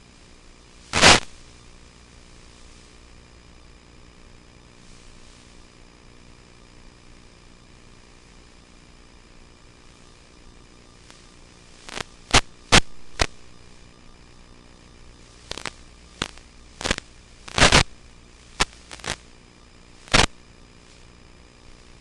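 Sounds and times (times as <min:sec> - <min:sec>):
radio signal crackles and pops: 0:00.0 - 0:22.0
static hiss: 0:00.0 - 0:22.0.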